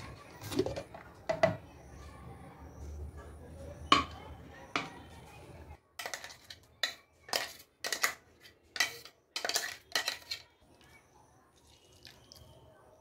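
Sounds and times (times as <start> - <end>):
spoon scraping a steel jar: 6.0 - 10.6.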